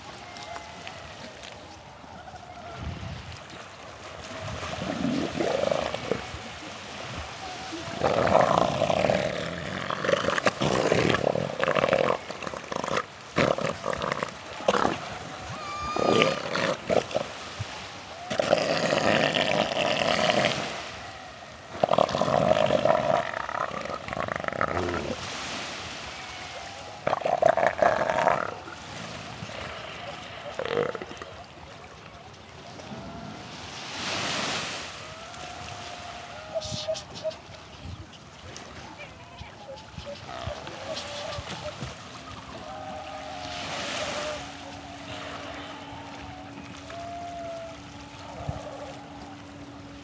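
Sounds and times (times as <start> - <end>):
elephant seals roaring: 4.7 - 6.6, 7.3 - 17.5, 18.1 - 31.5, 34.8 - 37.4, 39.8 - 50.0.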